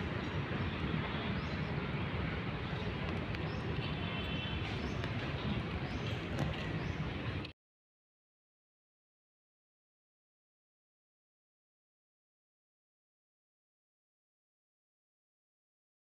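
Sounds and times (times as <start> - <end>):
low urban rumble: 0.0 - 7.5.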